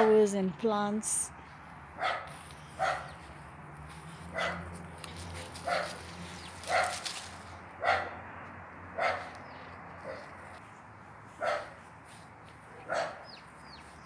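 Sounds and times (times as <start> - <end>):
dog barking: 2.0 - 3.2, 4.3 - 4.7, 5.6 - 6.0, 6.7 - 7.0, 7.8 - 8.2, 9.0 - 9.3, 10.0 - 10.3, 11.4 - 11.8, 12.7 - 13.4.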